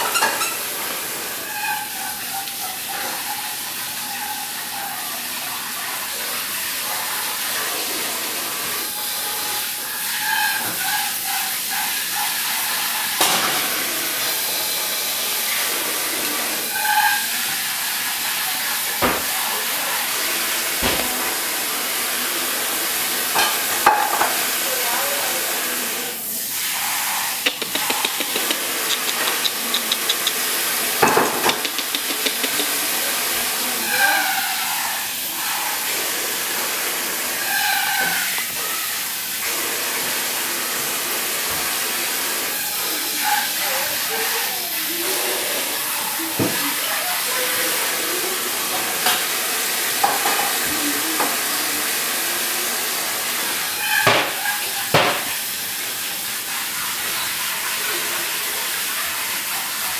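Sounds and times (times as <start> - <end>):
dog vocalisations: 26.7 - 34.4
clicks and knocks on tile: 27.4 - 32.8.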